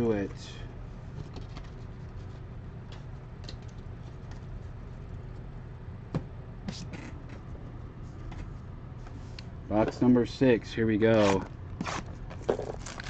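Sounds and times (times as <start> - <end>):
cardboard and wrapper rustling: 11.2 - 13.0.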